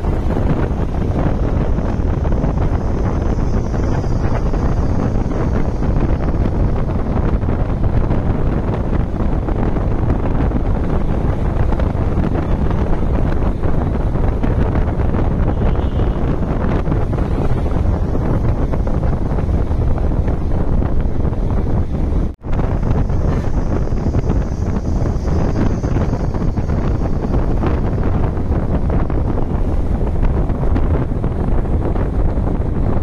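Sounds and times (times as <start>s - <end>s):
bus engine: 0.0s - 33.0s
road noise: 0.0s - 33.0s
wind on microphone: 0.0s - 33.0s.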